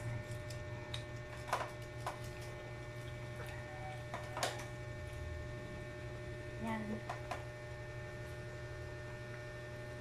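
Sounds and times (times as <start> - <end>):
steady low hum: 0.0 - 10.0
children eating clicks and smacks: 0.2 - 5.2.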